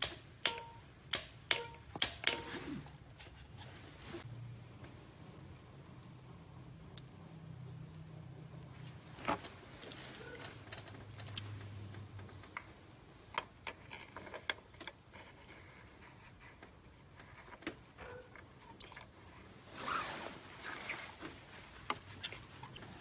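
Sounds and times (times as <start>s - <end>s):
glove rustling: 19.6s - 23.0s.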